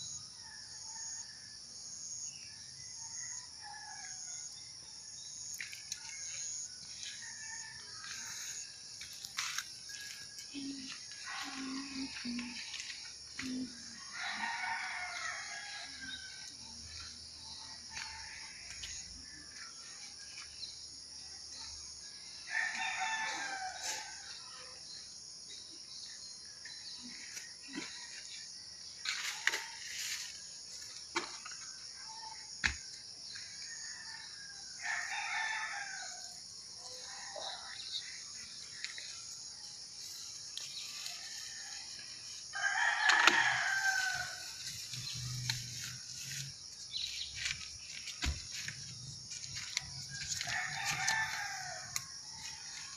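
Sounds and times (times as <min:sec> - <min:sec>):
rooster crowing: 0:13.9 - 0:16.6, 0:22.5 - 0:24.2, 0:33.7 - 0:37.6, 0:41.1 - 0:44.6, 0:49.6 - 0:52.9.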